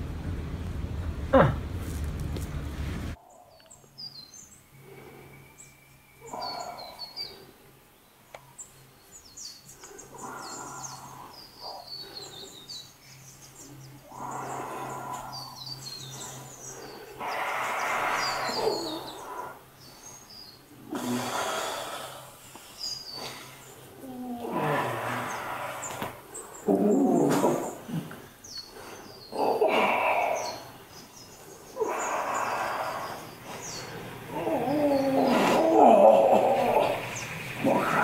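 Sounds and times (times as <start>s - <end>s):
low steady hum: 0.0s - 3.2s
birds chirping: 0.0s - 38.0s.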